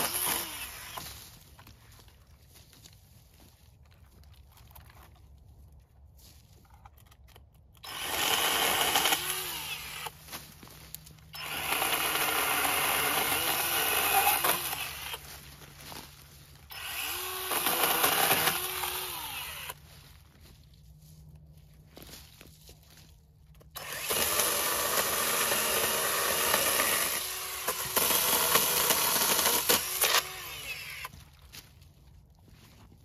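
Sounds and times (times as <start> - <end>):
chainsaw cutting wood: 0.0 - 1.4, 7.8 - 10.3, 11.3 - 15.5, 16.6 - 19.8, 23.7 - 31.2.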